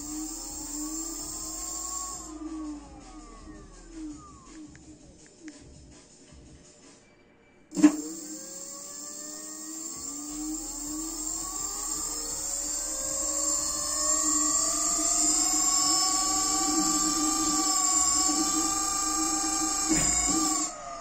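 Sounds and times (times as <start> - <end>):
electric motor whine rising: 0.0 - 5.7, 7.7 - 21.0
scooter motor clunk: 19.8 - 20.7.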